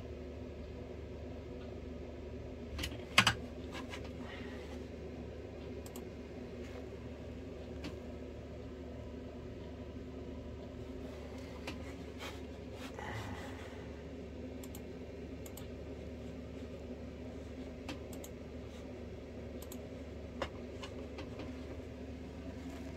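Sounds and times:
steady low hum: 0:00.0 - 0:22.9
computer mouse clicking: 0:02.8 - 0:04.1, 0:05.6 - 0:06.1, 0:14.6 - 0:15.8, 0:17.7 - 0:18.5, 0:19.5 - 0:21.6.

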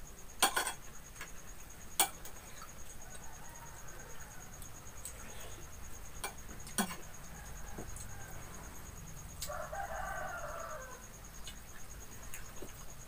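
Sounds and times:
rooster crowing: 0:02.8 - 0:05.7, 0:06.8 - 0:11.2.

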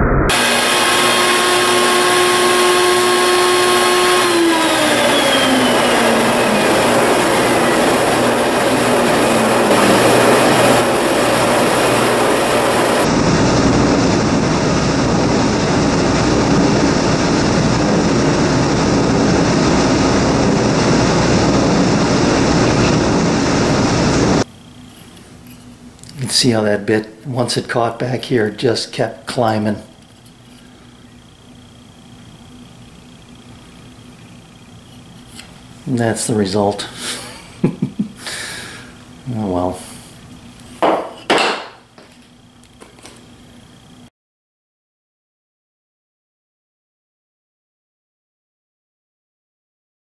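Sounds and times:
router motor whine: 0:00.3 - 0:13.2
loud rushing noise: 0:04.9 - 0:24.5.

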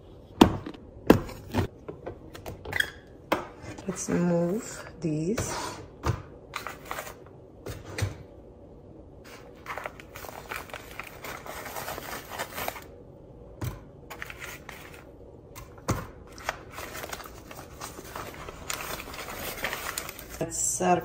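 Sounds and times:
parchment paper crinkling: 0:09.3 - 0:12.9, 0:16.3 - 0:20.6.

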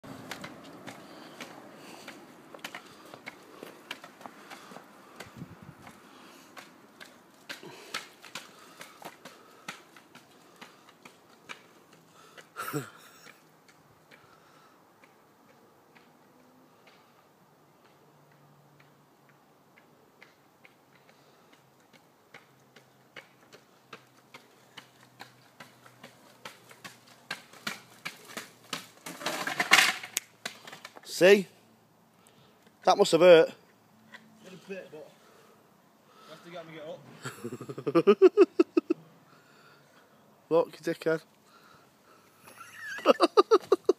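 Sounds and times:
spring stilts clacking on tarmac: 0:00.0 - 0:12.6, 0:17.8 - 0:31.1
scraping clatter of a fall: 0:27.8 - 0:30.9.

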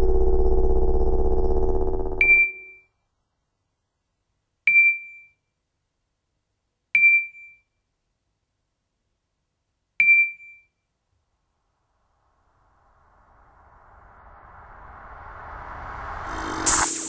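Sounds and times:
low droning hum: 0:00.0 - 0:02.4, 0:12.6 - 0:17.0.

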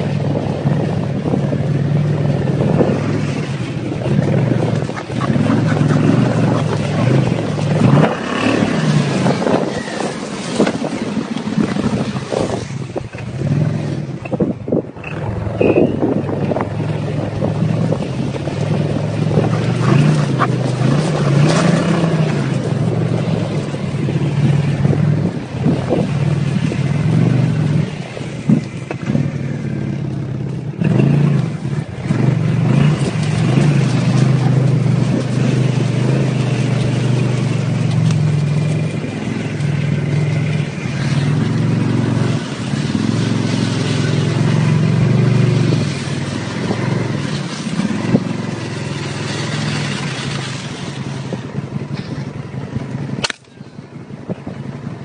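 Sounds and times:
snowmobile engine revving: 0:01.8 - 0:12.7, 0:15.0 - 0:30.0, 0:30.8 - 0:52.4.

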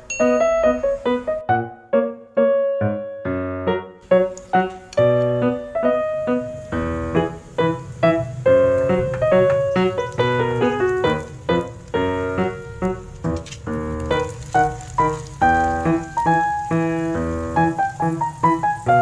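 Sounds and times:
keyboard melody: 0:00.0 - 0:19.0.

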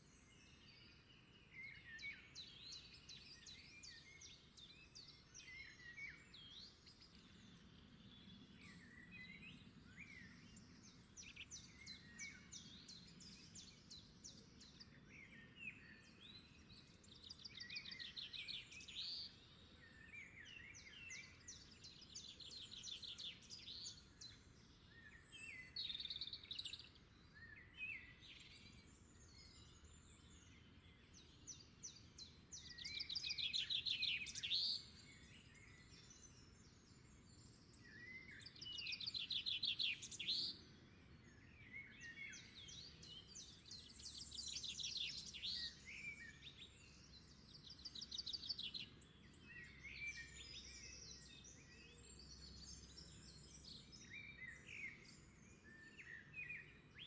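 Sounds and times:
songbird trilling and chirping: 0:00.1 - 0:57.0.

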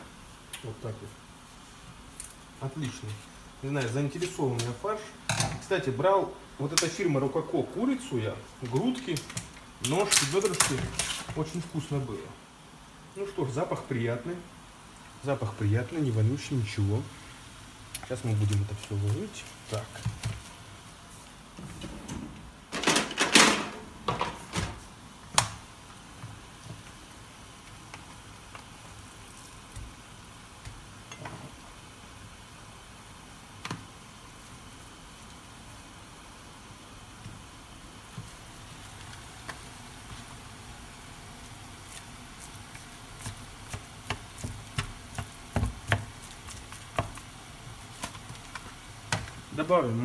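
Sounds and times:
faint steady hiss: 0:00.0 - 0:50.0
kitchen handling knocks and rustles: 0:21.6 - 0:25.5.

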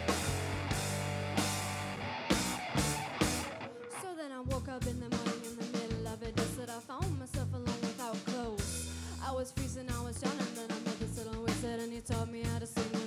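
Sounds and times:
drum kit beat: 0:00.0 - 0:03.7, 0:04.6 - 0:13.0
electric guitar lead: 0:00.0 - 0:04.2.

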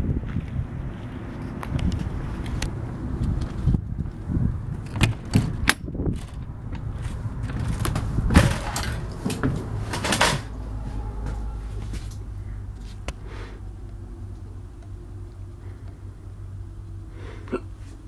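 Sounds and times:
steady low hum: 0:06.0 - 0:18.0.

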